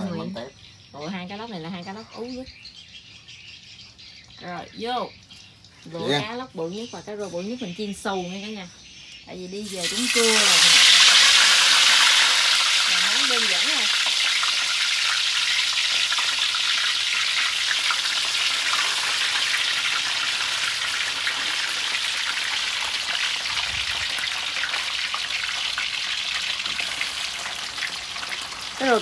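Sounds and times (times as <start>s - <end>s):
fish deep-frying in hot oil: 9.1s - 29.0s.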